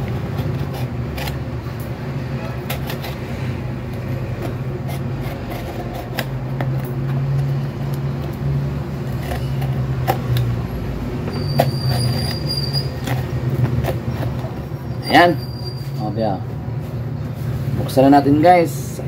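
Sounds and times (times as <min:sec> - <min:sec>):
utility knife cutting tape: 0:00.0 - 0:01.8, 0:02.5 - 0:08.0, 0:09.0 - 0:10.6, 0:11.3 - 0:14.6.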